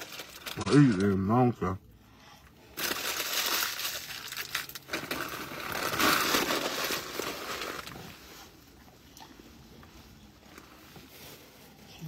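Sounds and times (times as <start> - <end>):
food packaging crinkling: 0.0 - 1.4, 2.8 - 8.1.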